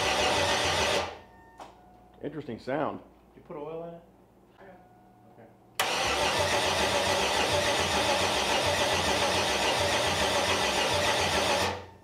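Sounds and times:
engine cranking without firing: 5.8s - 11.9s.

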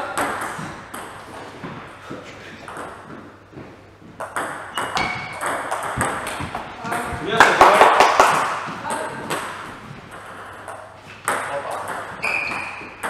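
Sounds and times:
table-tennis ball clicking: 4.2s - 13.0s.

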